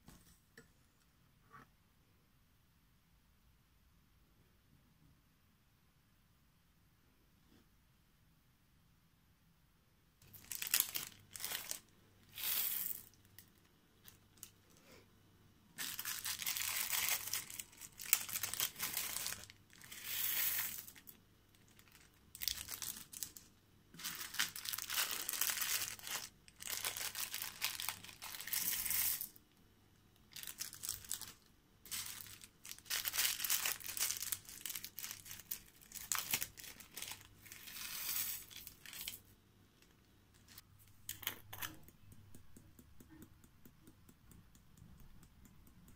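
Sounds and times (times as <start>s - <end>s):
plastic bags crinkling: 10.2s - 14.5s, 15.8s - 29.4s, 30.3s - 39.2s.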